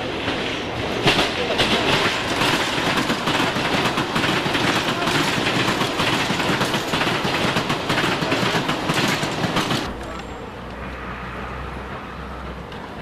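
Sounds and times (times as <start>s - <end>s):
train wheels clattering over rails: 0.0s - 10.4s
electric train passing: 0.0s - 13.0s.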